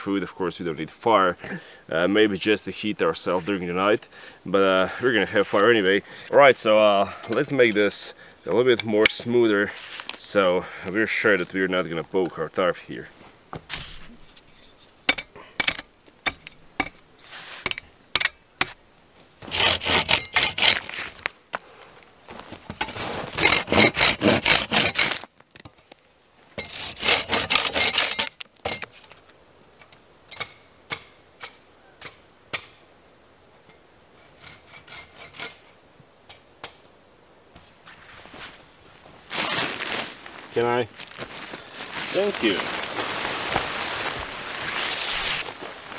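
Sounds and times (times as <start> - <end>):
hand saw rasping on wood: 19.4 - 20.9, 22.8 - 25.2, 26.6 - 28.2.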